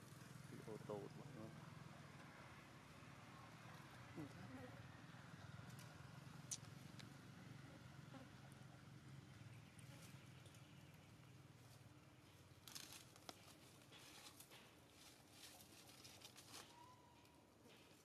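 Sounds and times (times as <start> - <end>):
dry leaves rustling and crackling: 12.6 - 17.0.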